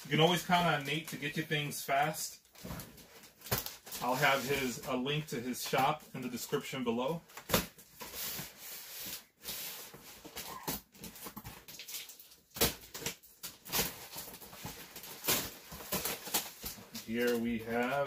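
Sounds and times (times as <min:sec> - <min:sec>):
packing tape and cardboard ripping: 0:07.4 - 0:17.8.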